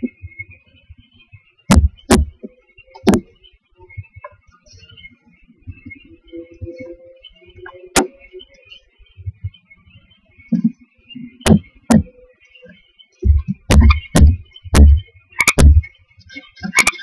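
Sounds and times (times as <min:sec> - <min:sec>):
thumps on wooden nest box: 0:01.7 - 0:03.3, 0:11.4 - 0:12.2, 0:13.2 - 0:15.9.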